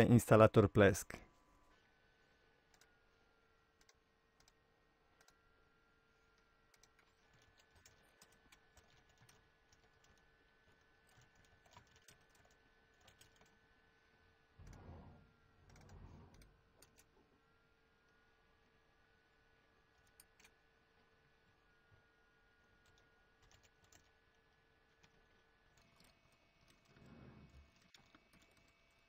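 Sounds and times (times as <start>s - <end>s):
keyboard typing: 6.8s - 13.6s, 15.7s - 17.1s, 22.8s - 24.2s, 25.0s - 29.0s.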